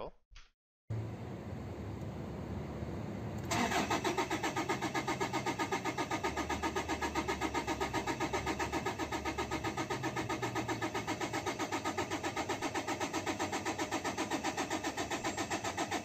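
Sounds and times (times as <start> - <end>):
starter motor cranking diesel engine: 3.3 - 16.0.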